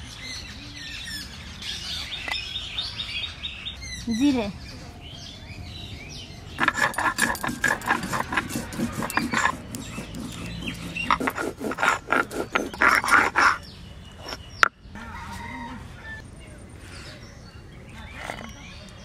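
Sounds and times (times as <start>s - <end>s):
stone grinding rasping strokes: 6.6s - 14.4s
quiet scraping of paste: 6.6s - 14.6s.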